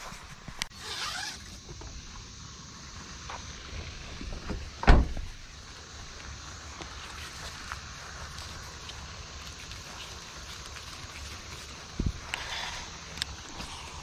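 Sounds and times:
loud low thump: 4.4s - 5.3s.

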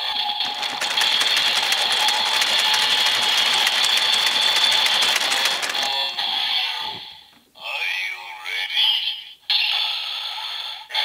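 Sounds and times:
toy electronic music: 0.0s - 6.9s.

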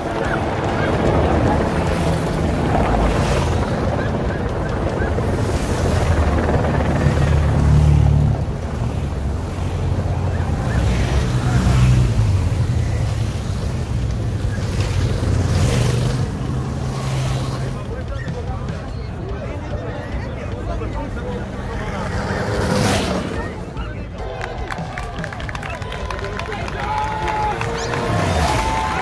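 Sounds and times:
wind buffeting microphone: 0.0s - 16.4s
cars and motorcycles passing: 0.0s - 29.0s.

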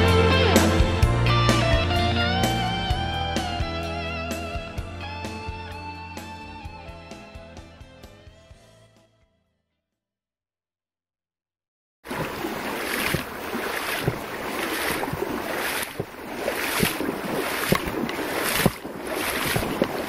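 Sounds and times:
river water running: 12.1s - 20.0s
wind buffeting microphone: 12.1s - 20.0s.

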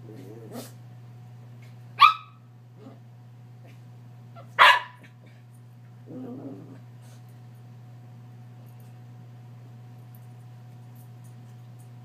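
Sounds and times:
dog growling: 0.0s - 0.8s, 6.0s - 6.9s
steady low hum: 0.0s - 12.0s
small dog barking: 2.0s - 2.5s, 4.4s - 5.2s.

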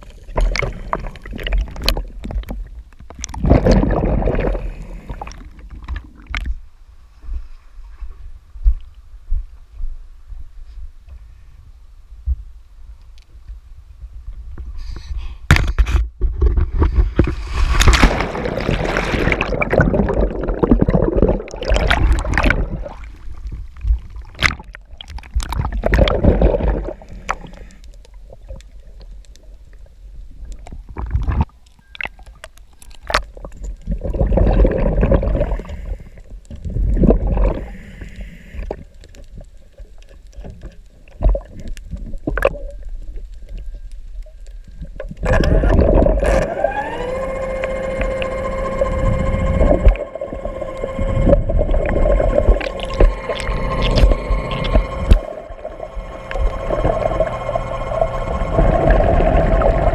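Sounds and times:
water bubbling underwater: 0.0s - 6.7s, 17.0s - 39.0s, 44.8s - 59.9s
deep underwater rumble: 0.0s - 15.4s, 16.1s - 59.9s.

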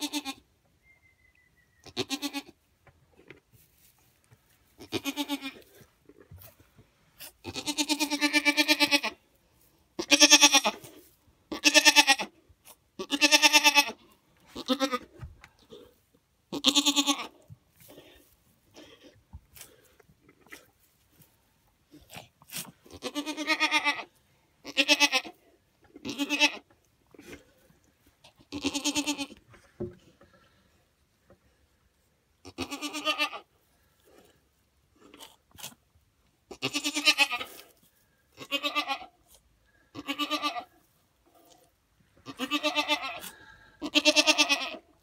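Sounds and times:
goat bleating: 0.0s - 0.4s, 1.8s - 2.6s, 4.8s - 5.8s, 7.4s - 9.2s, 10.0s - 10.9s, 11.5s - 12.4s, 13.0s - 15.2s, 16.5s - 17.4s, 22.8s - 27.3s, 28.4s - 29.4s, 32.4s - 33.5s, 36.5s - 37.7s, 38.4s - 39.2s, 39.9s - 40.8s, 42.2s - 45.0s.

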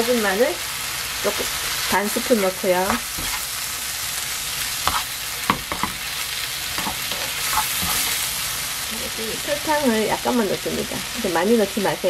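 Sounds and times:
vegetables sizzling in a pan: 0.0s - 12.0s
wooden spoon scraping a pan: 2.8s - 3.6s, 4.8s - 6.1s, 6.7s - 8.6s.

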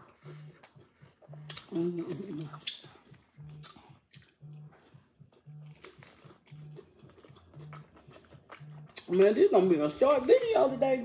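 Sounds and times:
faint pulsing low tone: 0.0s - 9.0s
taco shells crunching: 5.3s - 10.7s.

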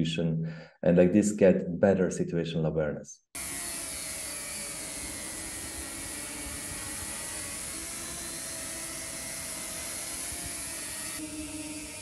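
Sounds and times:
drone propellers whining: 3.4s - 12.0s.

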